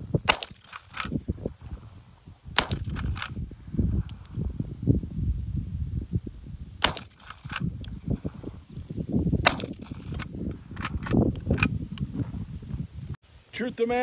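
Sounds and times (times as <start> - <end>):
rifle shots: 0.2 - 1.1, 2.6 - 3.4, 6.8 - 7.7, 9.4 - 11.2.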